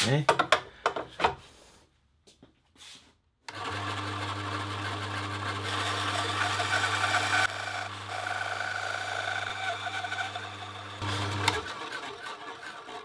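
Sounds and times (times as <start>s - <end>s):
bandsaw motor running: 3.5s - 13.0s.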